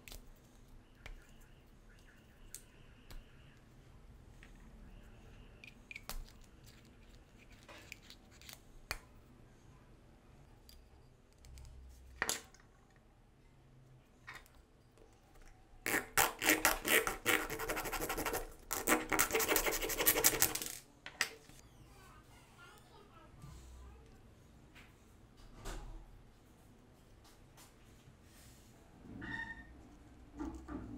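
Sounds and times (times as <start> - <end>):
scraping on plastic syringe part: 15.9 - 20.8.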